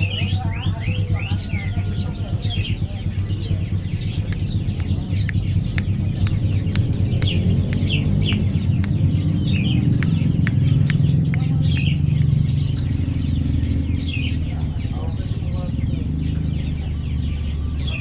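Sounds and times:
sharp clicks: 3.8s - 14.1s.

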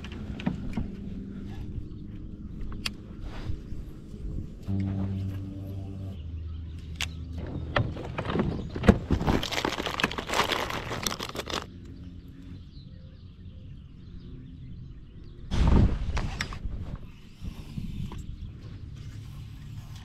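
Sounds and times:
low steady hum: 0.0s - 8.8s
plastic packets rustling: 9.1s - 11.7s.

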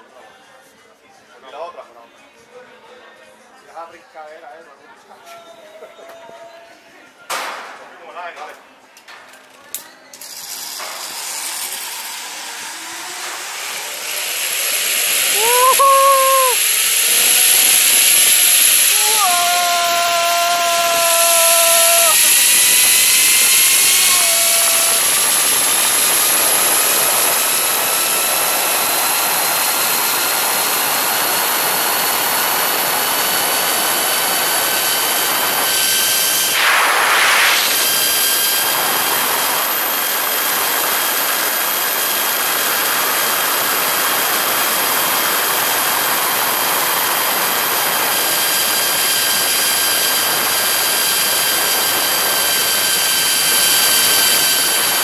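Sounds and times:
zip line pulley whine: 10.2s - 55.0s
wind rushing: 36.4s - 39.3s.

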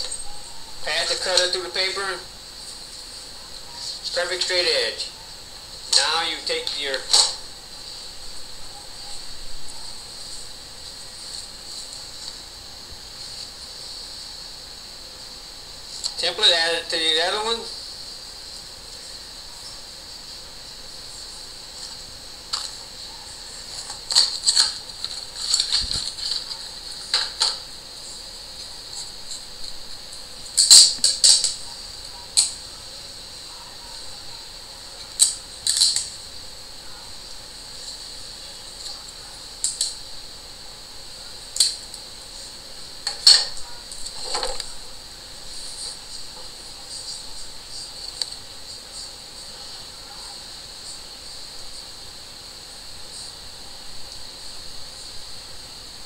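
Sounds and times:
paper and tape rustling: 23.6s - 28.2s.

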